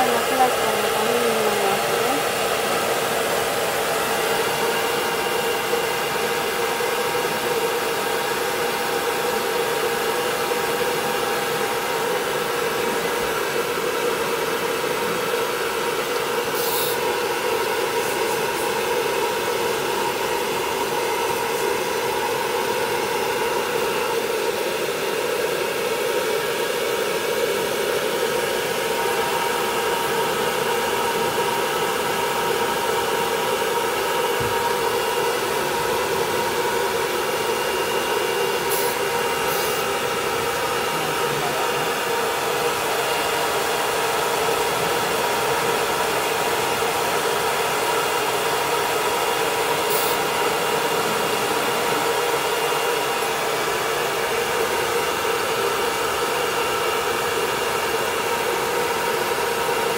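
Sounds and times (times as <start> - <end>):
hair dryer blowing: 0.0 - 59.9.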